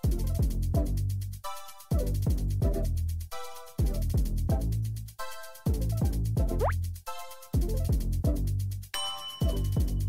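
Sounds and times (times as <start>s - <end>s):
deep kick drum: 0.0s - 1.0s, 2.0s - 2.9s, 3.8s - 4.8s, 5.7s - 6.8s, 7.6s - 8.5s, 9.4s - 10.0s.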